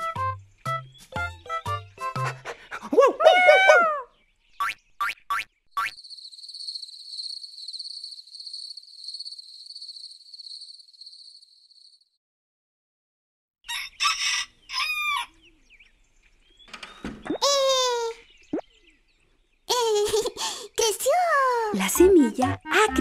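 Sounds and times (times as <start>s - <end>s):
crickets trilling: 5.8s - 12.2s
rooster crowing: 13.7s - 15.4s.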